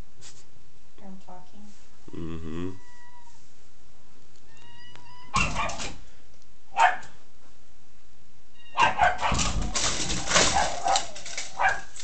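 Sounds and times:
dog barking: 0:05.3 - 0:06.0, 0:06.7 - 0:07.2, 0:08.7 - 0:09.7, 0:10.3 - 0:12.0.

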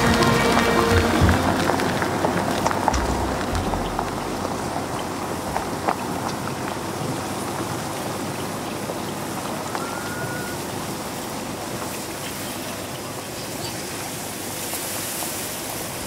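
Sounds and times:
tyres rushing on gravel: 0:00.0 - 0:12.2.

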